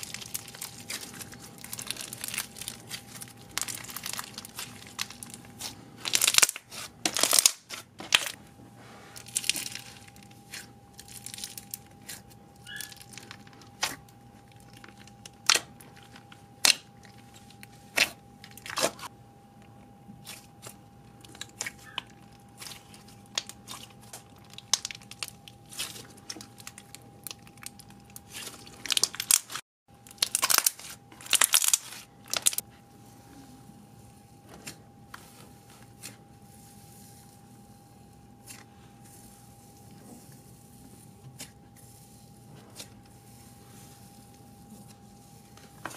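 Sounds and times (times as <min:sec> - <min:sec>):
hands squishing slime: 0:00.0 - 0:08.4, 0:09.1 - 0:19.1, 0:20.2 - 0:29.6, 0:38.1 - 0:45.9
faint steady hum: 0:00.0 - 0:45.9.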